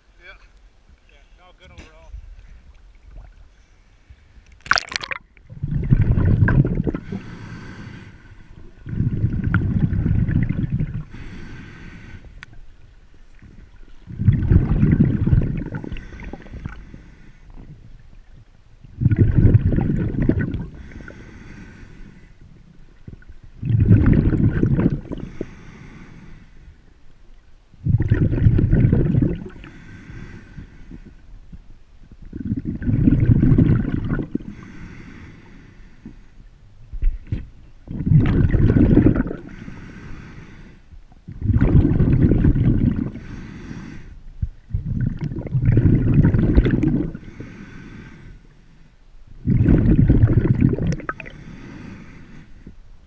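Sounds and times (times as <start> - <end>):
low watery wash: 0.0 - 53.0
breathing through a snorkel: 6.2 - 12.4, 14.4 - 17.8, 19.1 - 22.4, 24.0 - 26.9, 29.4 - 31.3, 34.2 - 36.5, 38.8 - 44.2, 44.8 - 48.9, 49.5 - 52.8.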